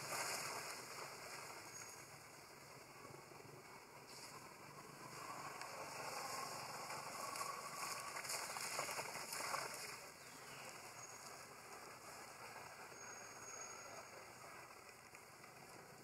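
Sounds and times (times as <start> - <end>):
monkeys splashing in water: 5.9 - 11.0.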